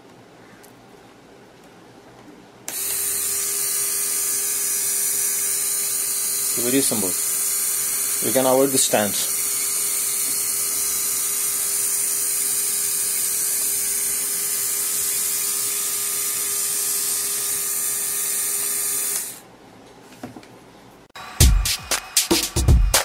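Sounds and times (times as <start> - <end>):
small motor whirring: 2.7 - 19.4
background music with a beat: 21.2 - 23.0.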